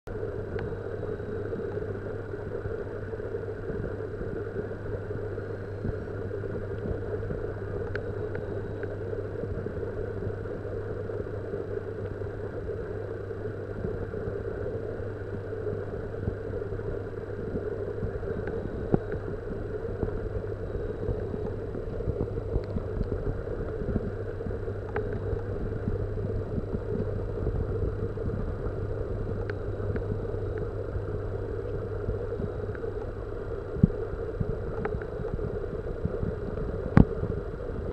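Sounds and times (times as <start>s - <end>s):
water pump humming: 0.1s - 37.9s
faint clicks: 7.8s - 9.0s, 24.8s - 25.5s, 34.7s - 37.2s.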